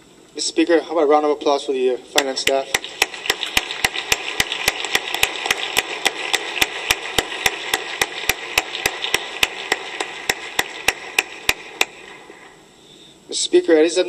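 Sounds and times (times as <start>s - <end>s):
sharp even claps: 2.2s - 12.6s
crowd applause: 2.6s - 12.6s.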